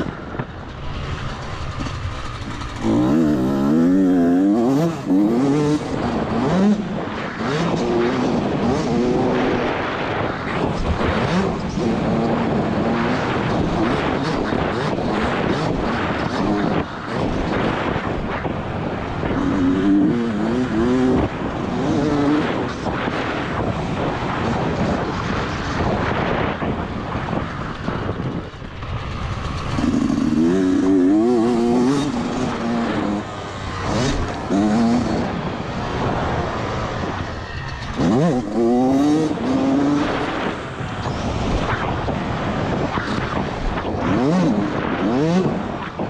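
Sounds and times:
wind and tyre rush: 0.0s - 46.0s
motocross engine revving: 1.1s - 9.7s, 19.2s - 23.2s, 29.2s - 43.3s, 44.0s - 45.7s.

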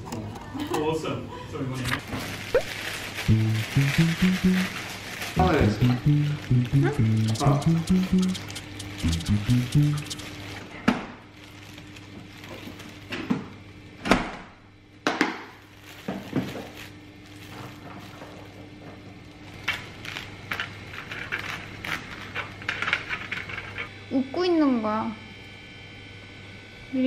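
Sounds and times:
plastic crinkling: 2.0s - 5.4s, 11.4s - 13.3s, 15.5s - 18.7s
knife crunching through food: 8.4s - 9.1s.

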